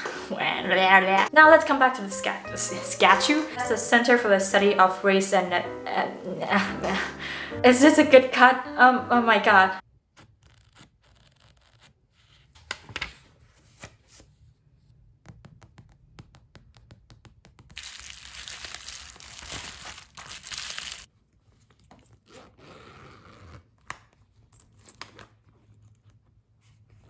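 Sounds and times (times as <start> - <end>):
bubble wrap crinkling: 17.7 - 21.1
fabric pouch rustling: 17.8 - 25.6.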